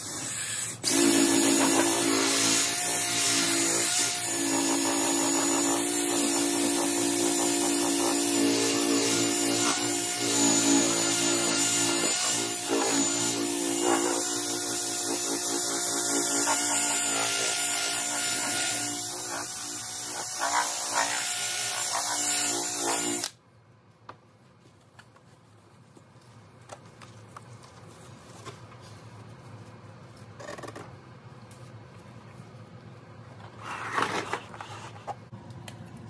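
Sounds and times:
cordless drill motor whine: 7.1s - 23.3s.

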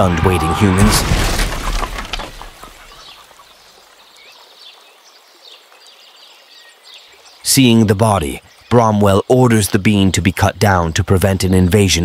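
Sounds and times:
giant body crashing to ground: 0.6s - 2.7s.

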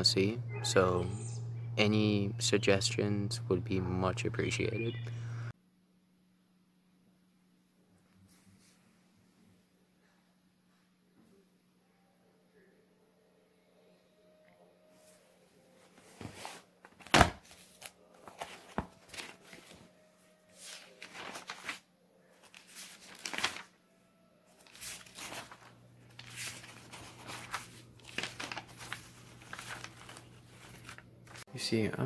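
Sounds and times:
faint low hum: 0.0s - 16.4s
paper sheets rustling: 15.8s - 23.8s, 24.5s - 31.4s.

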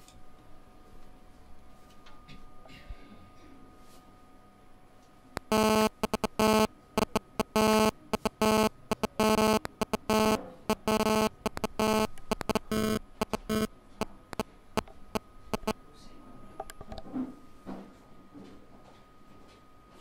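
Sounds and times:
morse code buzzer: 5.4s - 13.7s, 15.5s - 15.8s
small clicks: 5.4s - 13.7s.

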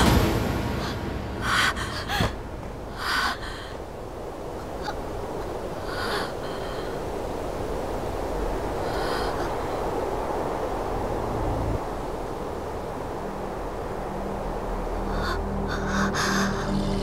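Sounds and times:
wind rushing: 0.0s - 17.0s
woman gasping for breath: 0.8s - 2.4s, 3.0s - 3.8s.

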